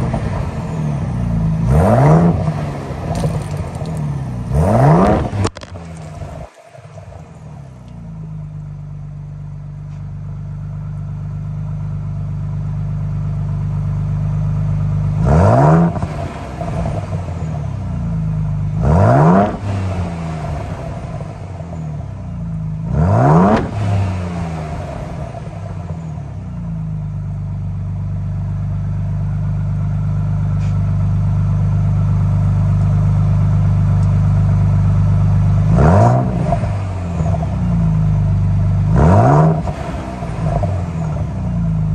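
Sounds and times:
engine revving: 0.0 - 8.0, 15.0 - 21.8, 22.8 - 26.6, 35.2 - 41.9
engine idling: 0.0 - 15.2, 24.4 - 39.0.

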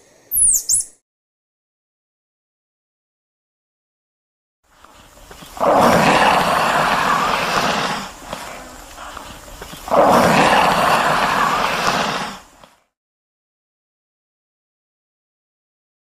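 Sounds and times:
lizard hissing: 4.8 - 12.9.

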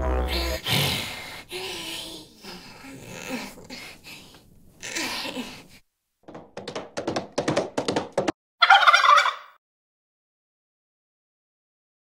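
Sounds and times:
clattering hoofbeat knocks: 6.2 - 8.4.

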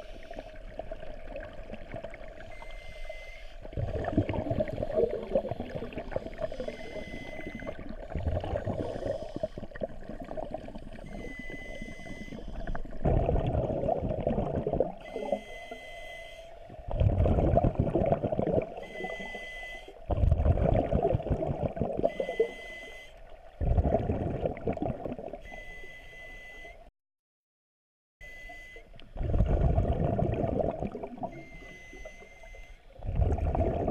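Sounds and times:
exhaled bubbles rushing: 3.7 - 15.3, 16.9 - 19.2, 20.1 - 22.2, 23.4 - 25.4, 29.2 - 31.5, 33.0 - 33.9
regulator inhale hiss: 8.8 - 9.8.

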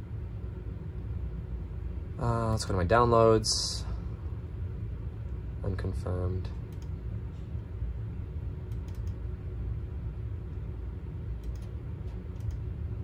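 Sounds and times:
steady low hum: 0.0 - 13.0
faint computer clicks: 6.7 - 7.0, 8.7 - 9.2, 11.4 - 12.7.

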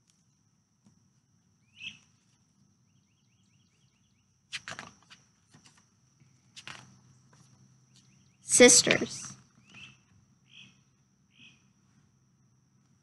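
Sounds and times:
bird chirps: 1.6 - 2.1, 9.6 - 11.7.

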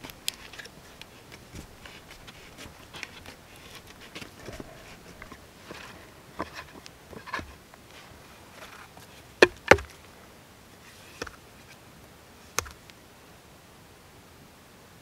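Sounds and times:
hand auger creaking in wood: 0.0 - 7.6
soft crackles: 0.0 - 10.2
sharp wooden knocks: 9.4 - 9.9.

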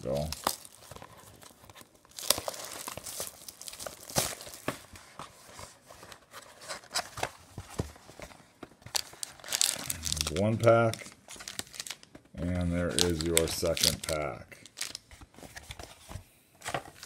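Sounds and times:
plastic wrap crinkling and tearing: 0.0 - 4.9, 8.8 - 15.2.

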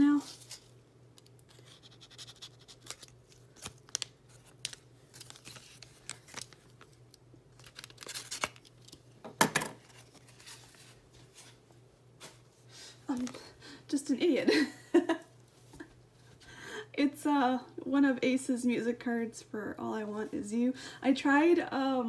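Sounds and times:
paper and plastic rustling: 0.1 - 0.8, 1.4 - 9.0, 9.7 - 11.6.

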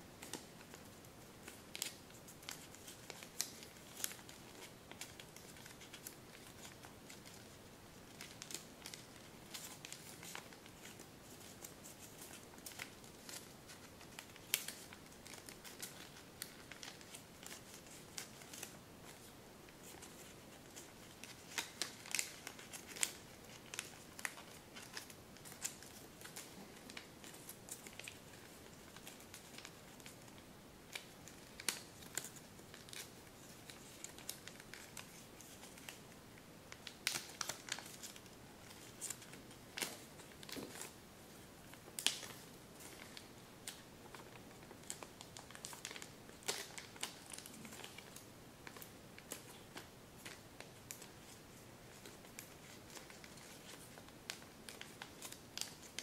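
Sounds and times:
sharp paper crackles: 0.2 - 36.0, 36.7 - 41.0, 41.8 - 56.0
paper crinkling and rustling: 0.2 - 36.1, 36.7 - 56.0.

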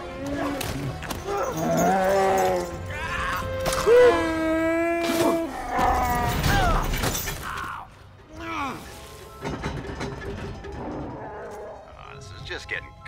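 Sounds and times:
dramatic orchestral music: 0.0 - 7.3.

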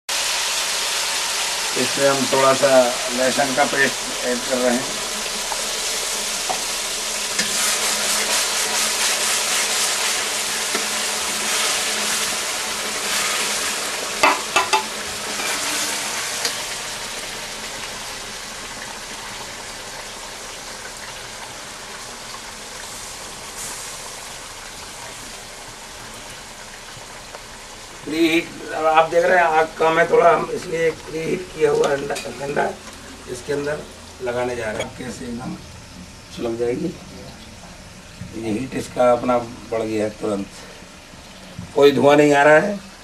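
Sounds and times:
garlic sizzling in hot oil: 0.1 - 43.0
metal spatula scraping wok: 7.3 - 12.4, 13.0 - 16.6
spatula clanking on wok: 14.2 - 15.6.

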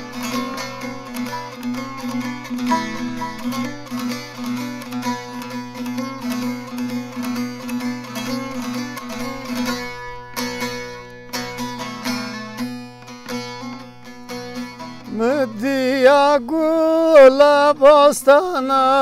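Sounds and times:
plucked saz folk melody: 0.0 - 19.0
man singing ornamented notes: 15.0 - 19.0.

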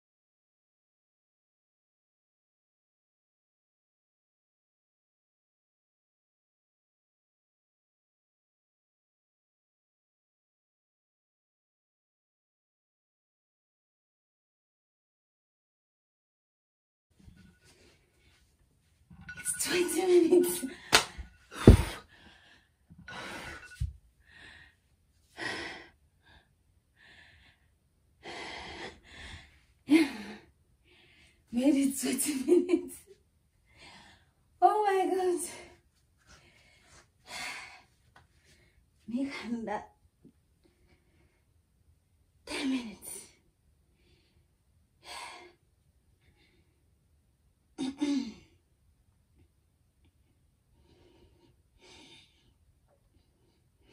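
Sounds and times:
woman breathing hard and gasping: 20.7 - 31.4.

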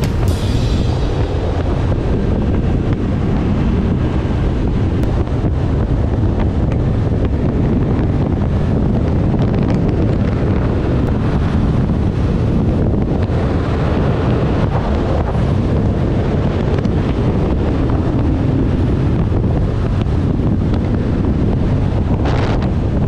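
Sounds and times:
motorcycle engine running: 0.0 - 12.1
wind rushing over microphone: 0.0 - 23.0.

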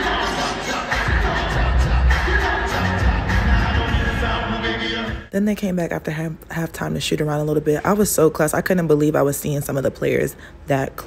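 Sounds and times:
music with heavy bass: 0.0 - 5.3.

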